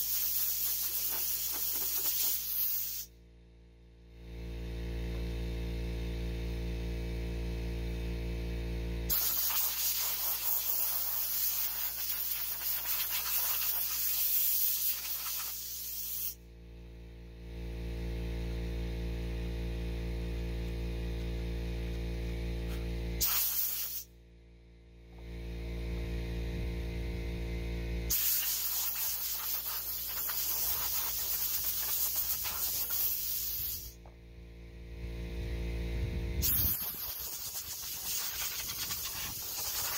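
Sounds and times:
compressed air hissing: 0:00.0 - 0:03.2, 0:09.1 - 0:16.4, 0:23.2 - 0:24.1, 0:28.1 - 0:34.0, 0:36.4 - 0:39.9
steady low hum: 0:00.0 - 0:39.9.

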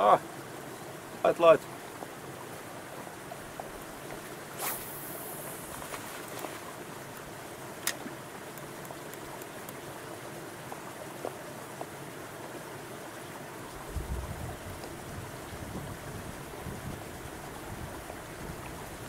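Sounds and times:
lapping lake water: 0:00.0 - 0:19.0
fishing line hissing off reel: 0:04.5 - 0:06.7
fishing rod swish: 0:04.6 - 0:06.7.

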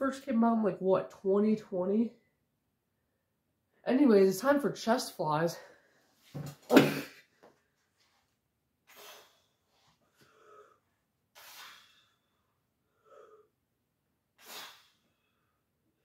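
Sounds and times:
man breathing sharply: 0:08.9 - 0:10.8, 0:11.4 - 0:13.5.

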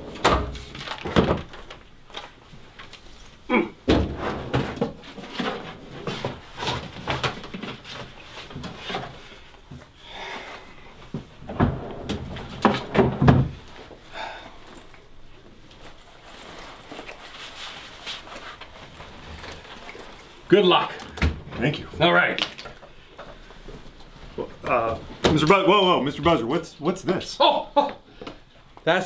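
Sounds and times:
objects knocking and rattling: 0:00.0 - 0:02.9, 0:03.8 - 0:09.9, 0:11.1 - 0:14.1.

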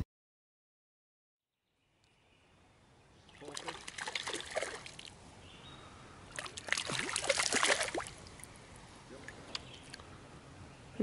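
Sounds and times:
fish splashing at water surface: 0:03.4 - 0:05.1, 0:06.3 - 0:08.5.

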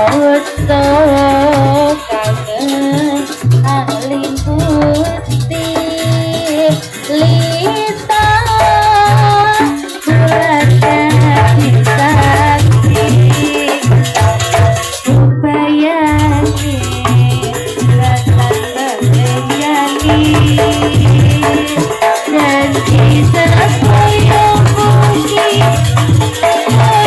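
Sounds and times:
wavering ornamented melody: 0:00.0 - 0:14.5, 0:16.1 - 0:26.9
low drum beats: 0:00.6 - 0:15.4, 0:16.1 - 0:19.4, 0:20.0 - 0:27.0.

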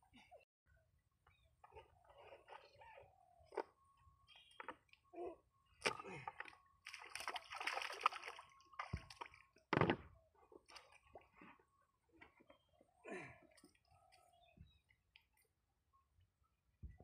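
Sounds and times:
water splashing and sloshing: 0:05.8 - 0:11.6.

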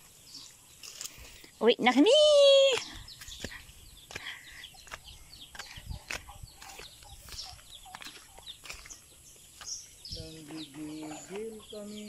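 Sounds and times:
small birds chirping: 0:00.0 - 0:12.0
footsteps and knocks: 0:03.4 - 0:11.6.

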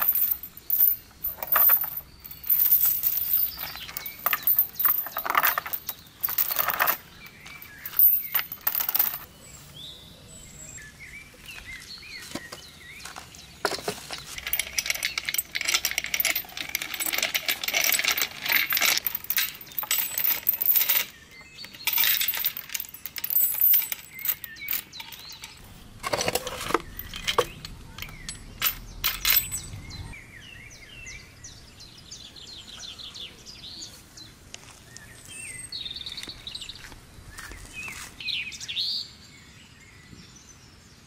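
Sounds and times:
light metallic clinking: 0:00.0 - 0:09.3, 0:13.7 - 0:30.0.

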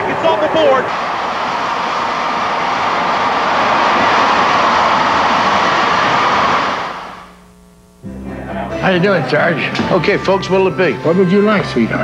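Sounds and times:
stadium crowd cheering: 0:00.0 - 0:07.4.

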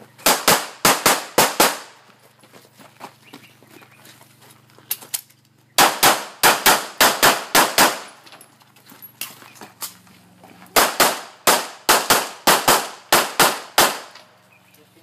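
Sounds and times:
handgun shots in pairs: 0:00.2 - 0:02.0, 0:05.0 - 0:08.2, 0:10.7 - 0:14.3.

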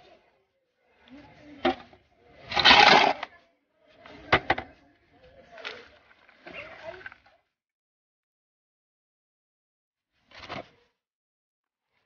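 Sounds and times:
metal scoop scraping and clicking: 0:02.5 - 0:03.3.

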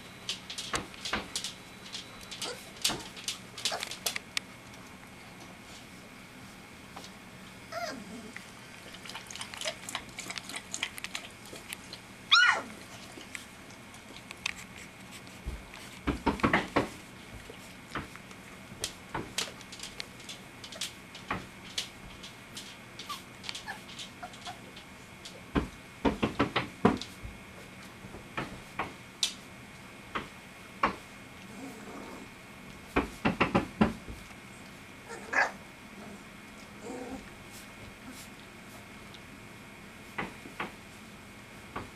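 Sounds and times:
puppies whimpering and squealing: 0:02.3 - 0:02.7, 0:07.6 - 0:08.4, 0:12.3 - 0:13.0, 0:23.0 - 0:24.7.

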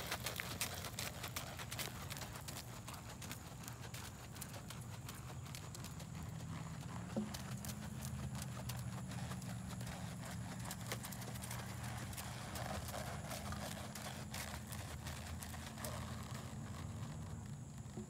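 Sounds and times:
horse hooves on sand: 0:00.0 - 0:18.0.

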